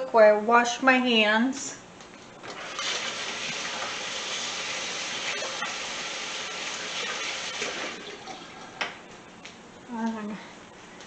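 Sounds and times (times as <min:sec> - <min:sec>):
tap water splashing into sink: 0:02.5 - 0:09.0.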